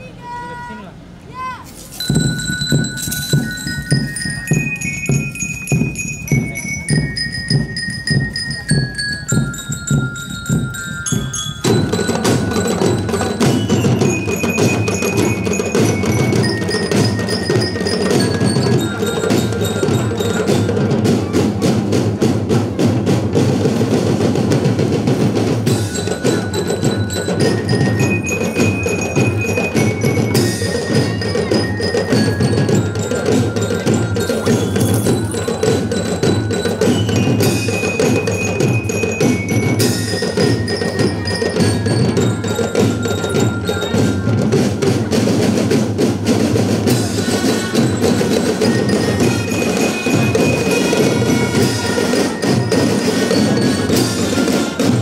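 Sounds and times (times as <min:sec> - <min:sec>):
marching drums: 0:00.0 - 0:55.0
marching band playing: 0:00.2 - 0:55.0
bell lyre melody: 0:01.9 - 0:21.2, 0:25.2 - 0:45.3, 0:46.9 - 0:55.0.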